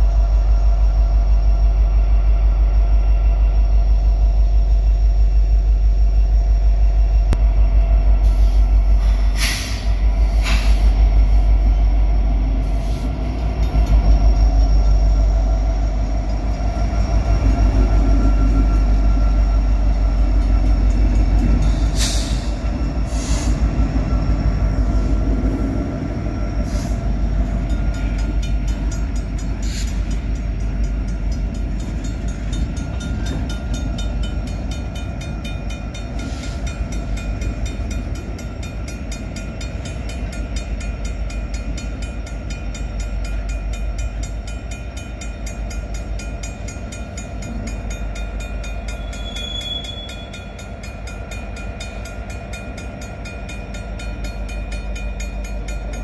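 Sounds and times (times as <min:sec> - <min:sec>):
diesel locomotive rumble: 0:00.0 - 0:56.0
high squeal: 0:21.6 - 0:28.2, 0:48.8 - 0:50.6.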